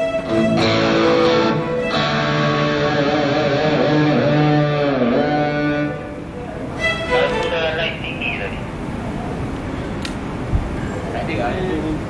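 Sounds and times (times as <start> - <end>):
electric guitar lead line: 0.0 - 8.8.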